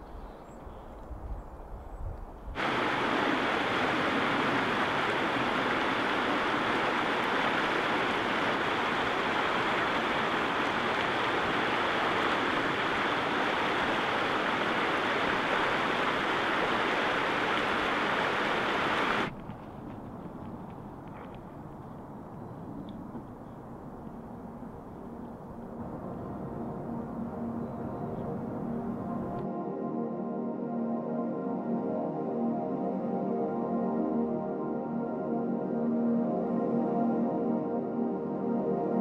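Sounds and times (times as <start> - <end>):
creek water rushing: 2.6 - 29.4.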